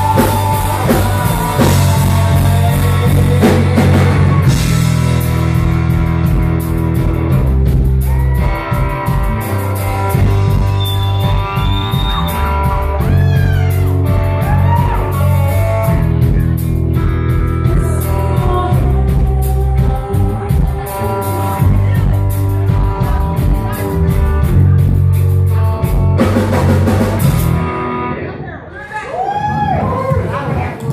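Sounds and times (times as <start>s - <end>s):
drum kit beat: 0.0s - 27.7s
live rock band playing: 0.0s - 28.4s
electric guitars: 0.0s - 28.5s.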